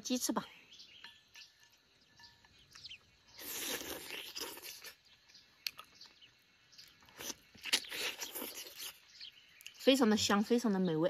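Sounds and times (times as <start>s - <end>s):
wet chewing and smacking: 2.1s - 9.8s.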